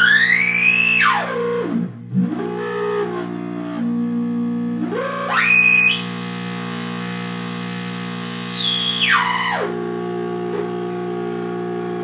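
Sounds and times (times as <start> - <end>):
buzzing synth oscillator tone: 3.9 - 11.0.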